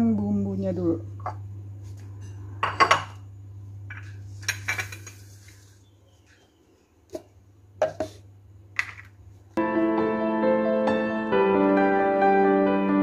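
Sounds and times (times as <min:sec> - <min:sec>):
steady low hum: 0:00.0 - 0:09.6
dishes and pot clinking: 0:02.6 - 0:03.2, 0:03.9 - 0:05.2.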